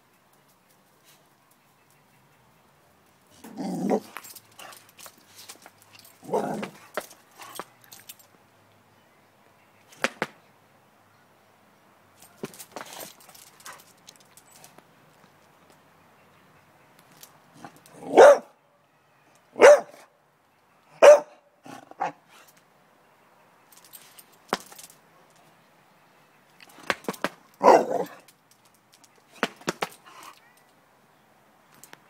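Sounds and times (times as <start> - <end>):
dog barking: 18.1 - 18.6, 19.6 - 20.1, 21.0 - 21.4, 27.6 - 28.2.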